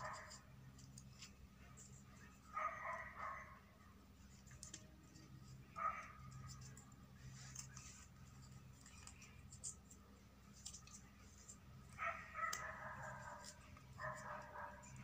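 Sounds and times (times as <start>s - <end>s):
paper rustling and folding: 4.2s - 15.0s.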